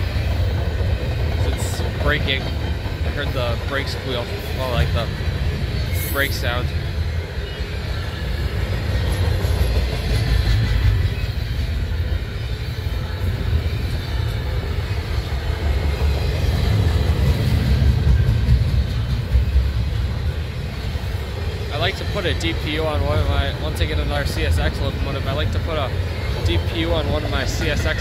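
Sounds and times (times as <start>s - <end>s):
freight train rumbling on rails: 0.0s - 28.0s.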